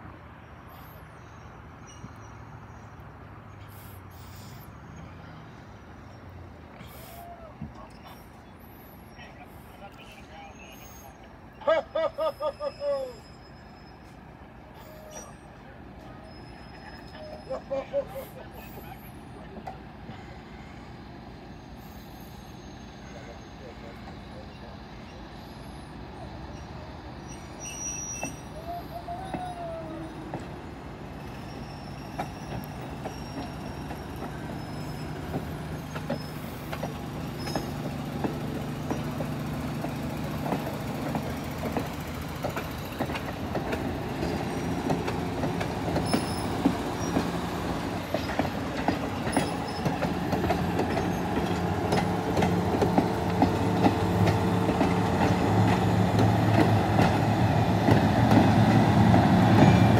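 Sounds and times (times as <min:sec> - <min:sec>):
diesel locomotive engine: 0:00.0 - 0:59.9
wheels clicking over rail joints: 0:28.1 - 0:59.9.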